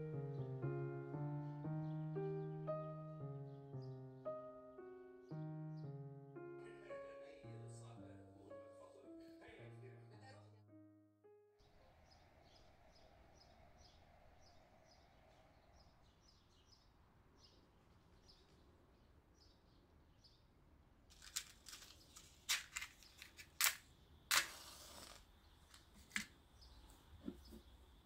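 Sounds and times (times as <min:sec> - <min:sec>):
birds chirping: 0:00.0 - 0:10.1, 0:11.6 - 0:20.6, 0:25.2 - 0:28.0
match scraping on matchbox: 0:21.2 - 0:26.3.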